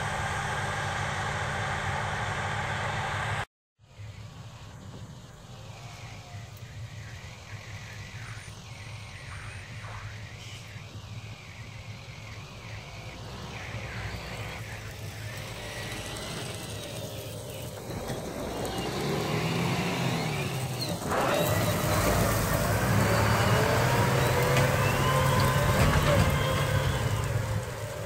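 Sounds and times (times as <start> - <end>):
combine harvester drone: 0.0 - 28.0
tractor engine driving past: 4.0 - 28.0.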